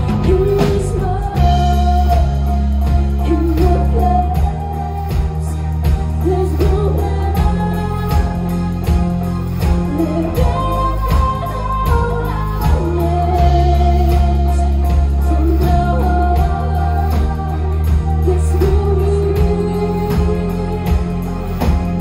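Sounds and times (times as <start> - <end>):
drum kit steady beat: 0.0 - 22.0
live rock band playing: 0.0 - 22.0
woman singing into microphone: 0.0 - 22.0.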